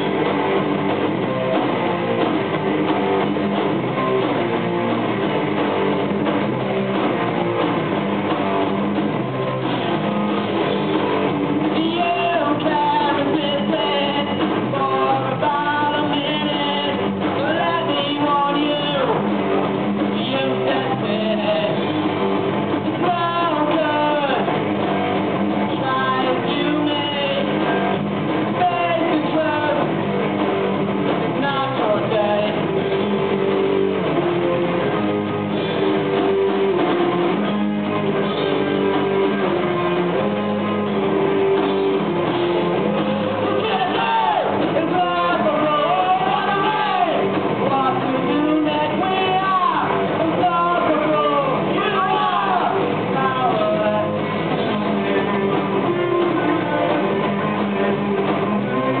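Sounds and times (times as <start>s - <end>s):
bass guitar: 0.0s - 59.0s
drum kit: 0.0s - 59.0s
electric guitars: 0.0s - 59.0s
person singing: 11.6s - 19.3s, 20.0s - 22.0s, 22.9s - 24.6s, 25.7s - 30.0s, 31.2s - 33.1s, 42.4s - 59.0s.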